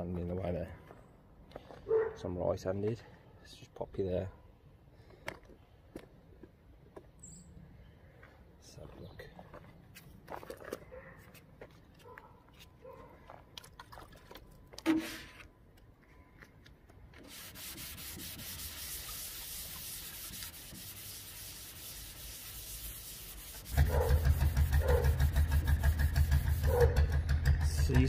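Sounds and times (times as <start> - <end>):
sandpaper rasping on metal: 17.2 - 27.2.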